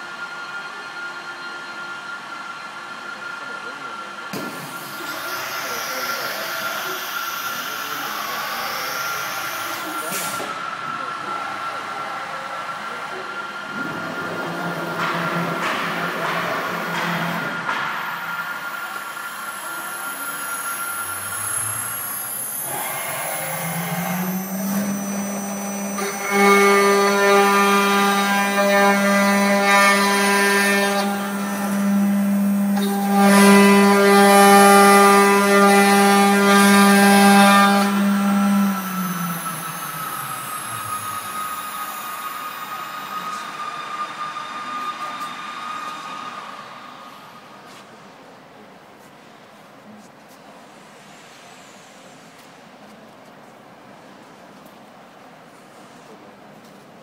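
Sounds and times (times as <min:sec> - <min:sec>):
cnc router whine: 0:00.0 - 0:48.2
spindle cutting into aluminium: 0:19.8 - 0:46.5
hiss: 0:50.4 - 0:52.8.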